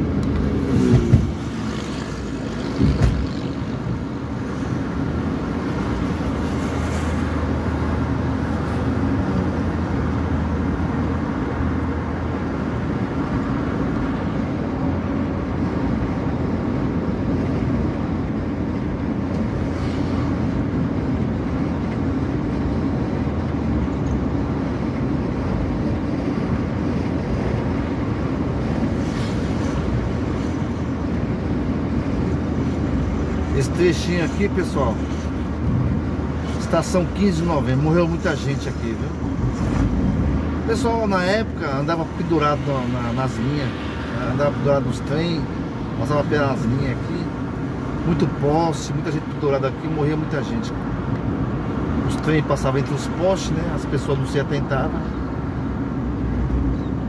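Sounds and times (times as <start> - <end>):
car engine hum: 0.0 - 57.0
short thump: 2.8 - 3.4.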